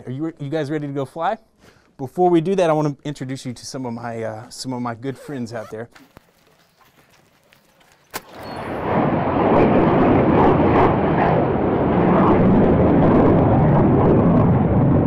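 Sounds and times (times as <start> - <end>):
jet engine noise: 7.6 - 15.0.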